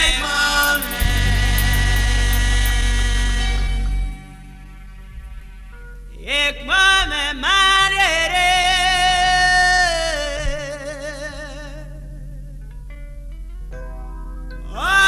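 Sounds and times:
solo voice singing gospel: 0.0 - 4.6, 6.1 - 12.6, 14.6 - 15.0
sustained backing chord: 0.0 - 6.4, 11.8 - 15.0.

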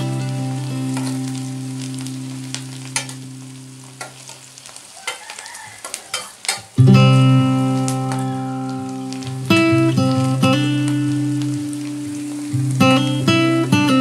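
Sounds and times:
acoustic guitar chords: 0.0 - 3.9, 6.8 - 14.0
onions sizzling in a pan: 0.0 - 14.0
metal spatula scraping pan: 5.1 - 6.8.

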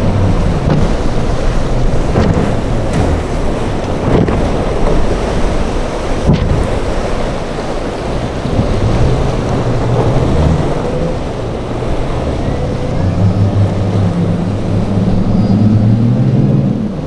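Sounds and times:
outboard motors droning: 0.0 - 17.0
surf: 0.0 - 17.0
wind: 0.0 - 17.0.

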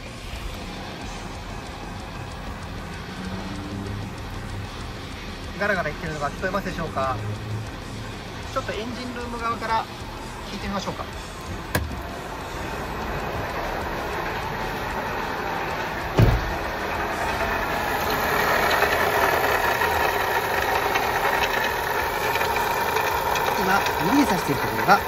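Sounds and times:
car engine idling with rattle: 0.0 - 25.0
thump: 16.2 - 16.6.

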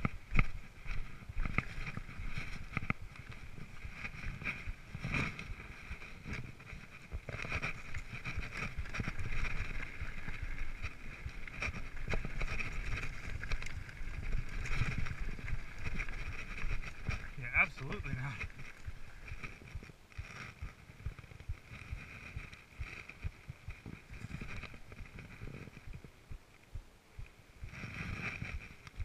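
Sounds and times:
bike knocking and rattling: 0.0 - 26.4
tyres rumbling on dirt: 1.8 - 20.3.

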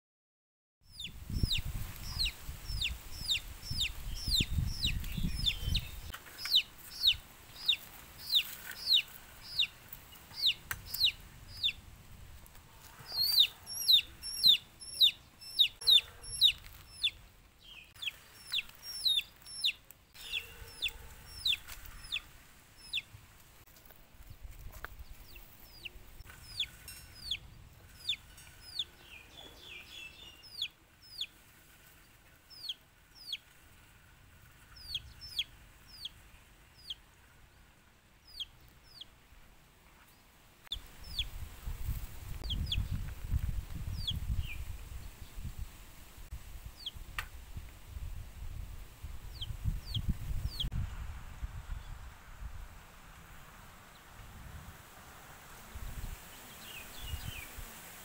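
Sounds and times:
chick peeping: 0.9 - 11.8, 12.5 - 23.1, 24.2 - 33.5, 34.5 - 36.2, 36.8 - 37.0, 38.2 - 39.1, 40.7 - 44.7, 46.8 - 47.0, 49.3 - 50.7.

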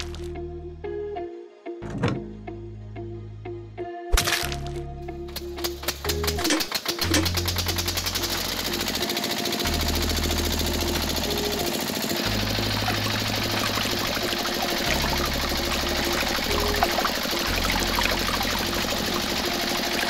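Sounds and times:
background music with steady beat: 0.0 - 20.0
water trickling into buckets: 12.8 - 19.5.

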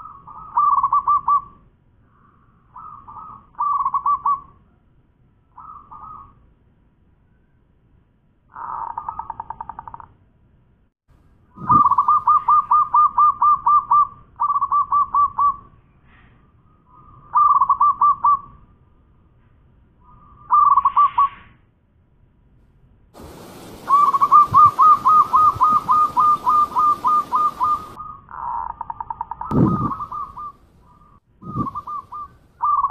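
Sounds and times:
dove cooing: 11.6 - 15.5, 23.2 - 28.4, 29.5 - 32.9
steady hiss: 23.2 - 28.0.

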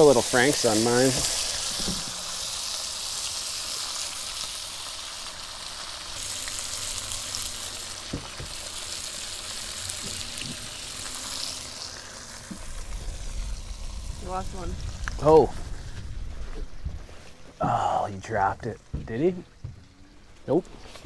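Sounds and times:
small pops of frying fat: 0.0 - 13.8
bacon sizzling in a pan: 0.0 - 16.6.

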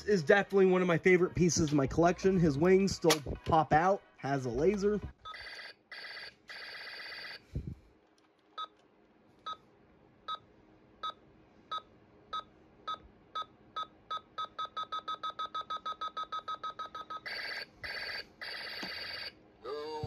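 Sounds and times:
electronic toy beeps: 12.9 - 19.1.

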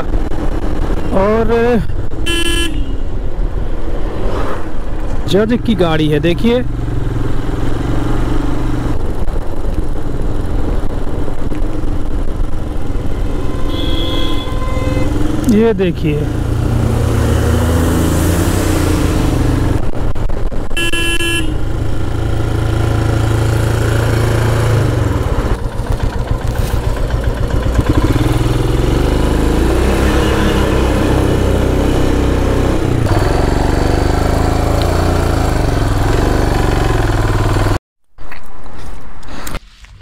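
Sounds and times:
vehicle horn honk: 2.2 - 3.1, 12.8 - 15.3, 20.8 - 21.6
motorcycle engine running: 5.6 - 18.1, 21.4 - 37.8.

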